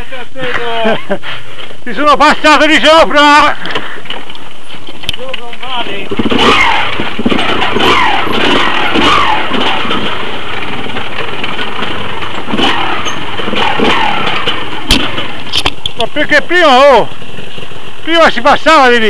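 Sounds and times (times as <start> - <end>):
dirt bike engine revving: 5.8 - 19.0.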